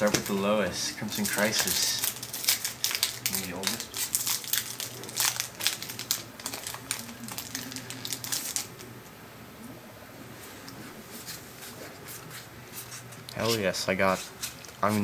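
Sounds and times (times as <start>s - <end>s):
foil pack crinkling and tearing: 0.0s - 8.9s.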